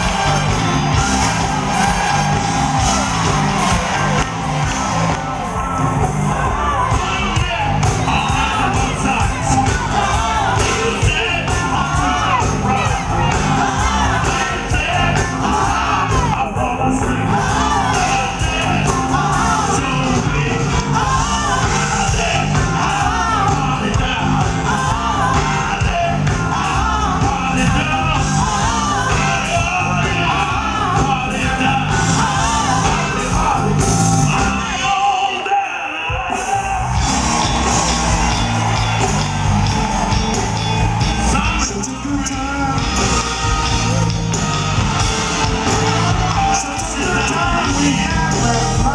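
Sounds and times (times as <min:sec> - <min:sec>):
live soul band playing: 0:00.0 - 0:48.9
man singing lead vocals: 0:06.2 - 0:39.1, 0:40.3 - 0:44.0, 0:45.4 - 0:48.9.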